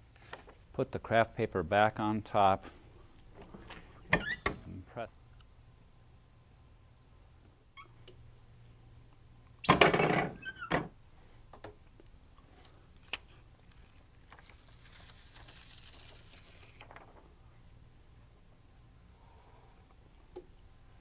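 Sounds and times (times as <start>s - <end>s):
heat press clunk and creak: 9.6s - 10.9s
paper rustling: 13.2s - 17.2s.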